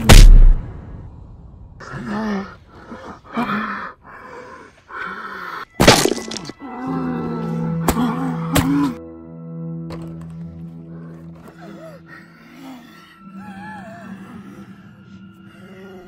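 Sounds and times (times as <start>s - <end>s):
sharp crack: 0.0s - 0.6s
low music drone: 0.0s - 16.0s
voice groaning: 1.8s - 4.1s, 6.4s - 9.0s, 11.4s - 16.0s.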